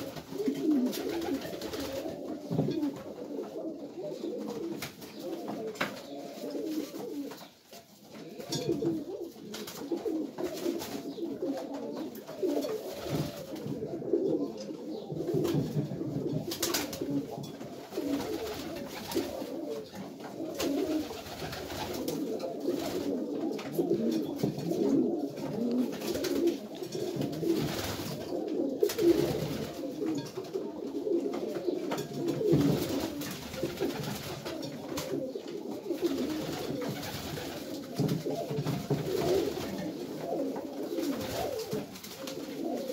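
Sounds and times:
wings flapping: 0:00.0 - 0:03.1, 0:12.3 - 0:13.8, 0:15.3 - 0:17.2, 0:17.8 - 0:29.9, 0:32.2 - 0:35.3, 0:35.9 - 0:42.9
pigeons cooing: 0:00.0 - 0:42.9.

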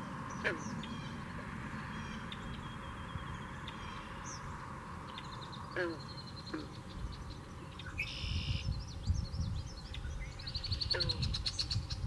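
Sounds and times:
birds calling: 0:00.0 - 0:12.0
bird trill: 0:05.1 - 0:12.0
wind rumble on microphone: 0:06.8 - 0:12.0.

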